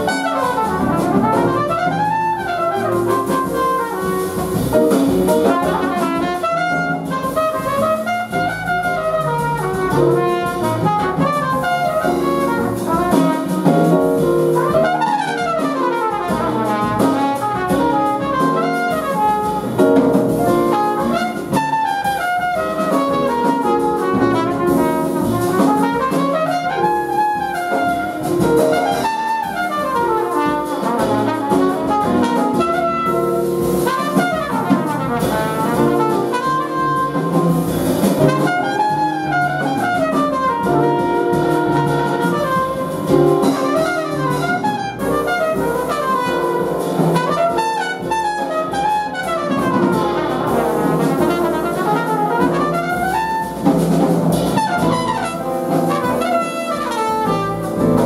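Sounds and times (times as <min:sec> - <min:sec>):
double bass: 0:00.0 - 0:58.0
drum kit: 0:00.0 - 0:58.0
piano: 0:00.0 - 0:58.0
brass and saxophones: 0:14.6 - 0:37.4, 0:38.0 - 0:58.0.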